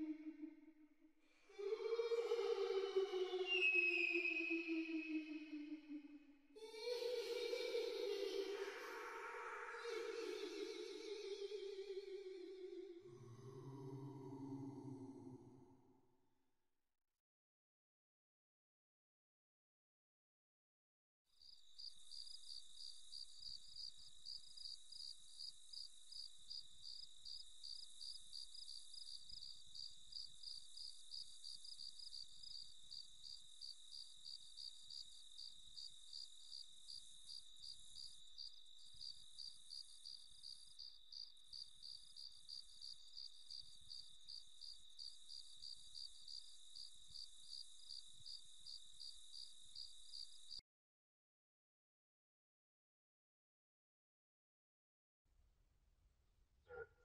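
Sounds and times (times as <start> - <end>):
crickets chirping: 1.5 - 12.5, 21.3 - 50.6.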